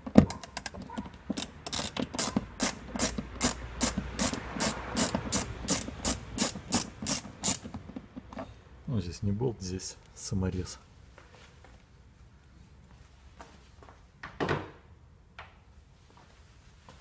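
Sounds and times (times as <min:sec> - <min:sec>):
ratchet screwdriver clicking: 0:01.3 - 0:07.8.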